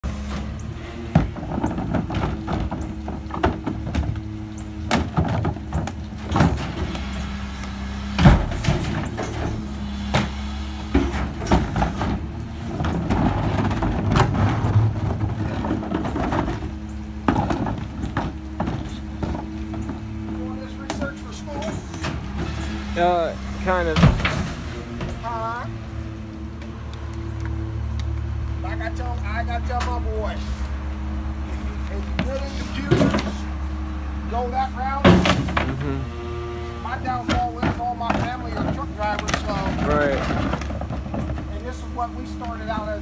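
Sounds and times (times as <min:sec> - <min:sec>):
garbage truck humming: 0:00.0 - 0:43.0
plastic carts banging on metal: 0:01.1 - 0:06.9, 0:10.2 - 0:25.7, 0:34.9 - 0:35.9, 0:36.9 - 0:43.0.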